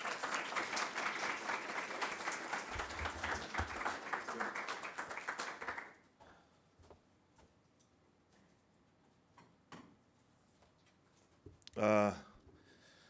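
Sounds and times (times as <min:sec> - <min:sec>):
audience applauding: 0:00.0 - 0:06.0.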